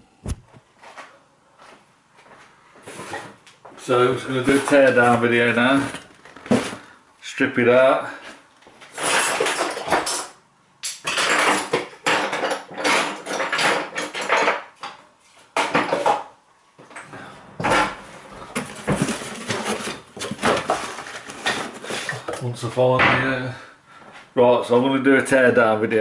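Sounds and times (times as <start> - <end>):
hard objects clattering: 8.8 - 15.0, 15.6 - 23.3.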